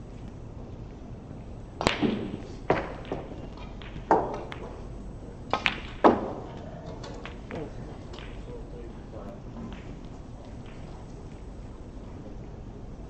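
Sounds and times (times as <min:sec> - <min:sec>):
snooker balls clacking: 0:01.7 - 0:12.1.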